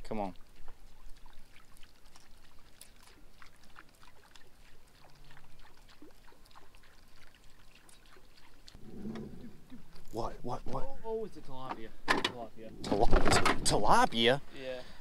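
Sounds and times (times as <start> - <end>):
water trickling and plinking: 0.0 - 14.3.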